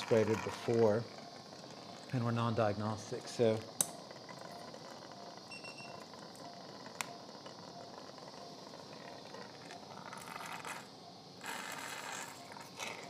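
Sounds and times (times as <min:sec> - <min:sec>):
steady low hiss: 0:00.0 - 0:13.0.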